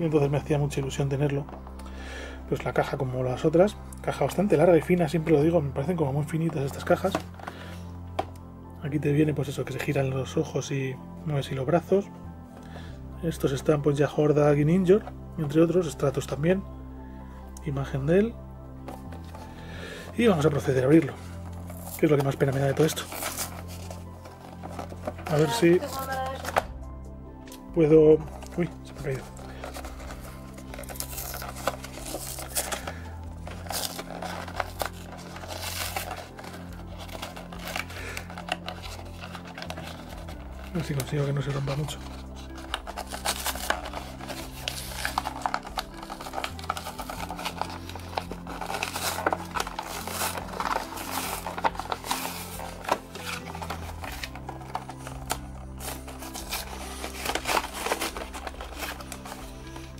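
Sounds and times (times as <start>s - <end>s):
quiet background music: 0.0s - 59.9s
cardboard and plastic packaging crinkling: 6.2s - 8.3s, 18.8s - 26.8s, 28.2s - 59.9s
plastic blister crackling and tearing: 20.4s - 26.7s, 28.3s - 59.9s.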